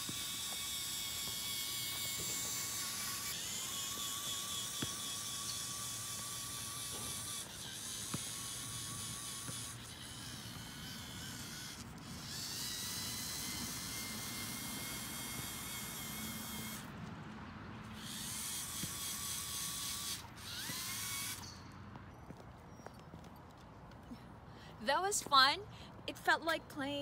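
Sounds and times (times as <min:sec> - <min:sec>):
toy car electric motors whining: 0:00.0 - 0:16.9, 0:17.8 - 0:21.6.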